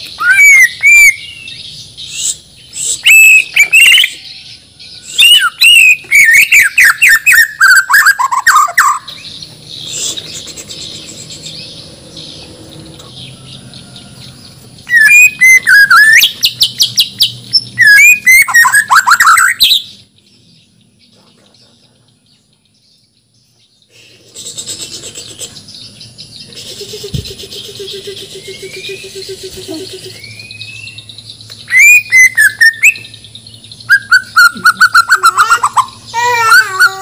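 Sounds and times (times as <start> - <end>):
bird singing whistled phrases: 0.0 - 4.3, 5.0 - 10.7, 14.9 - 19.9, 27.2 - 33.2, 33.8 - 37.0.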